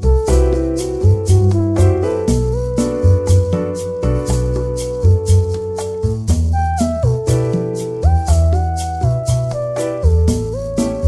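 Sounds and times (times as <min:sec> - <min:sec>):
music with strong bass beat: 0:00.0 - 0:11.0.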